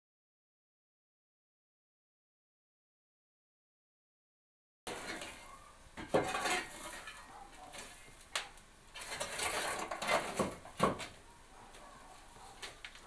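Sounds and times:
wooden pole scraping embers: 0:04.9 - 0:11.1
sharp wooden knocks: 0:10.1 - 0:11.2.

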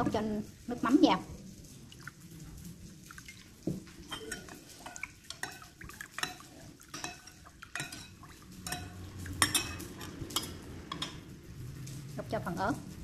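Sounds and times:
spoon clinking against pot: 0:04.1 - 0:11.2.

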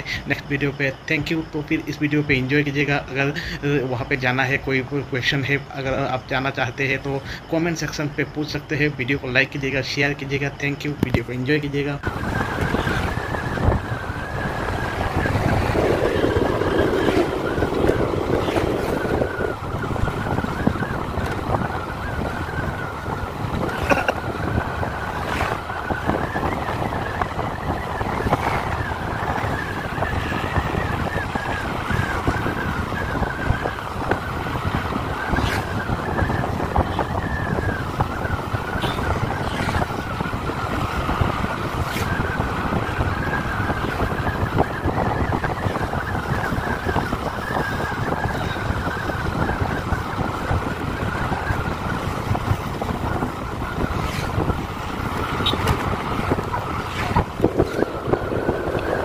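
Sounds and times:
moving vehicle running noise: 0:00.0 - 0:59.0
wind buffeting microphone: 0:00.0 - 0:59.0.

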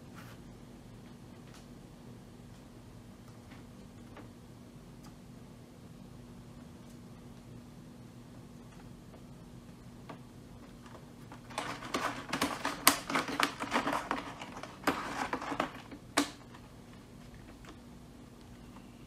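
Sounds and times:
small clicks and crinkles: 0:10.0 - 0:17.8.

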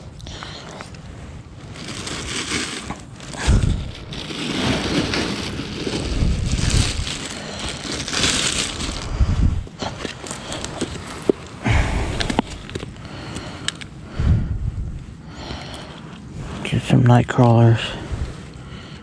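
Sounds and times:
plastic bags crinkling: 0:01.5 - 0:09.1, 0:09.7 - 0:11.6, 0:12.2 - 0:13.0.

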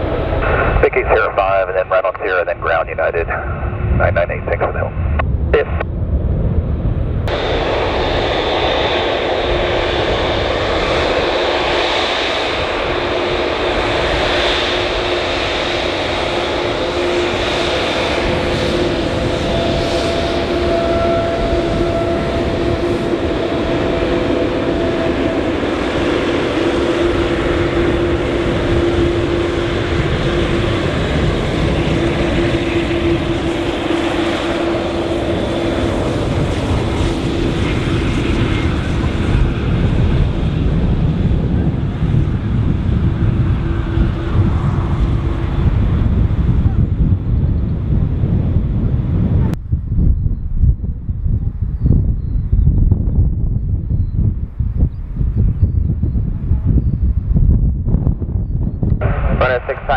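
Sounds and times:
jet engines rumbling: 0:00.0 - 0:59.9
higher engine tone: 0:14.8 - 0:38.7.

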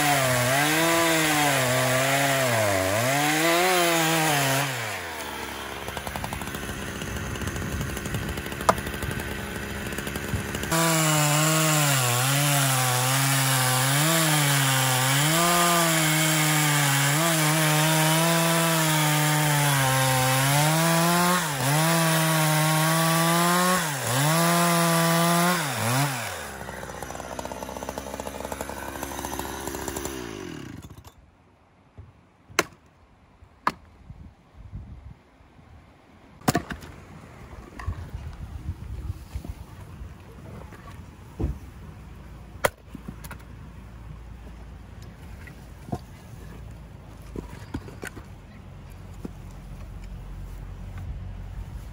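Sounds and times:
chainsaw cutting logs: 0:00.0 - 0:31.2.

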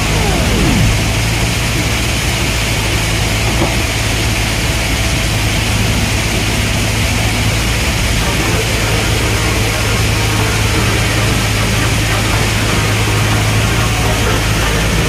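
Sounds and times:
excavator diesel engine running: 0:00.0 - 0:02.0.

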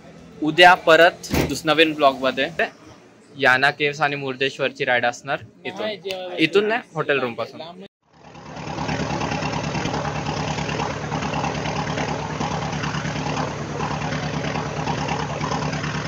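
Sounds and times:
motorcycle engine idling: 0:08.0 - 0:16.0.

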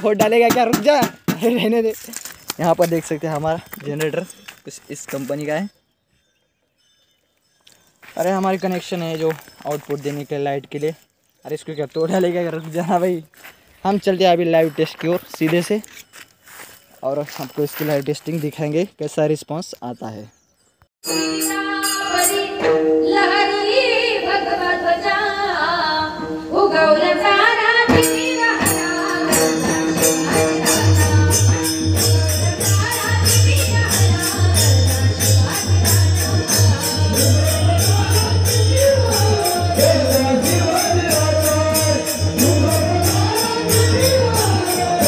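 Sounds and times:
devotional singing through speakers: 0:21.3 - 0:45.0
tambourine jingles: 0:28.0 - 0:45.0.

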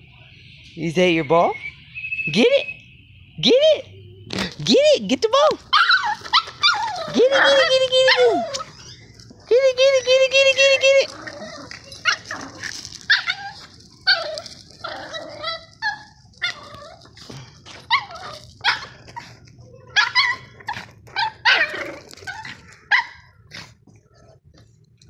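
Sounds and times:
small dog yipping and barking: 0:05.7 - 0:09.0, 0:11.2 - 0:17.0, 0:17.8 - 0:18.9, 0:19.8 - 0:23.4.

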